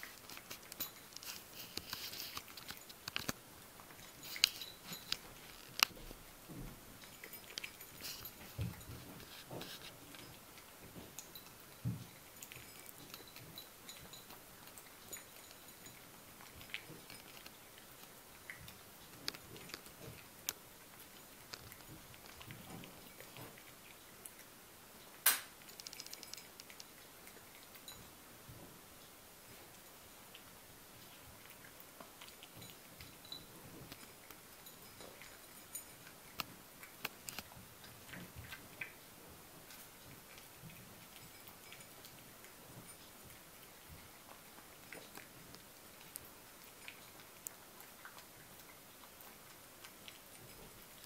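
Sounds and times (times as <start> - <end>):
dog crunching dry kibble: 0.0 - 24.5, 25.1 - 27.9, 29.6 - 51.0
kibble clicking against bowl: 25.1 - 28.0.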